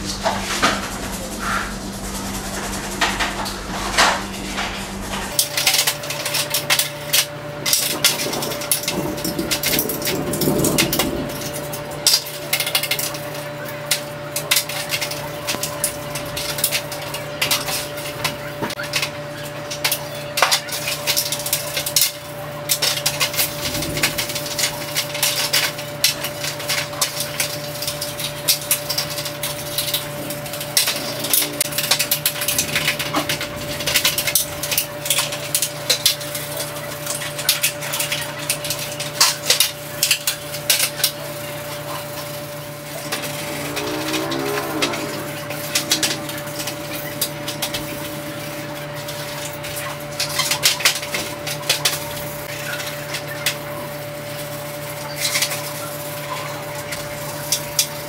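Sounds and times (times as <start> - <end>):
toothbrush scrubbing plastic: 0.0 - 58.0
parts clattering on metal tray: 19.7 - 53.6.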